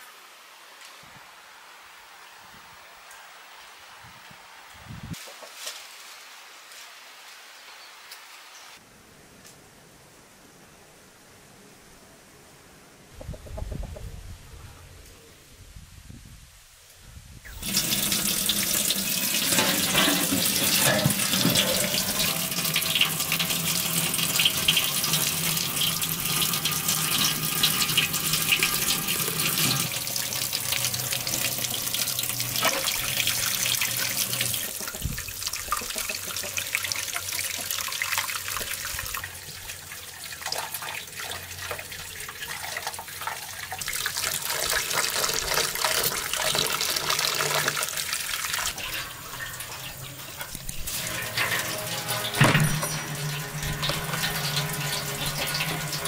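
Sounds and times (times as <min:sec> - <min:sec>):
tap water running into metal basin: 0:17.5 - 0:56.0.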